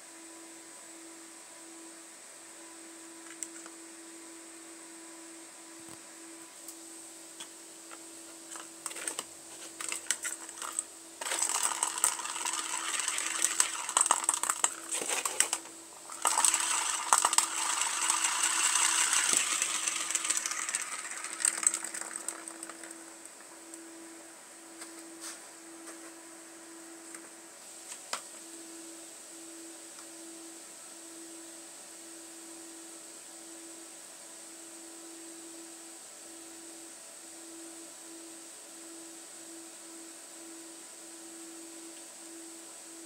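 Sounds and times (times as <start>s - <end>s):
ball rattling whirr on track: 8.5s - 23.6s
plastic ball clicking: 9.9s - 23.1s.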